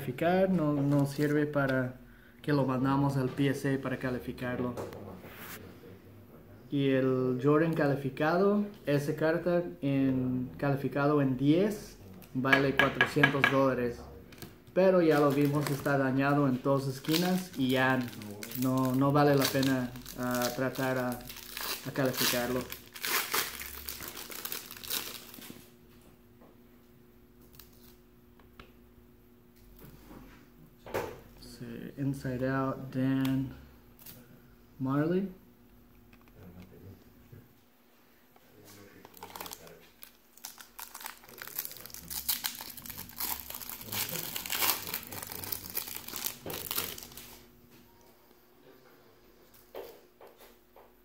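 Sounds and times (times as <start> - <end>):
foil wrapper crinkling and tearing: 15.1 - 15.9, 16.8 - 25.6, 39.0 - 47.4.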